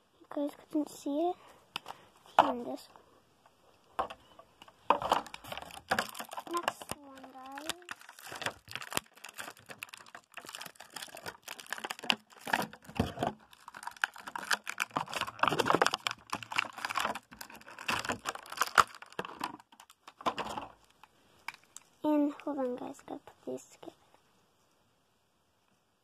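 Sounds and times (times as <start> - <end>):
toy packaging crinkling: 4.8 - 21.9.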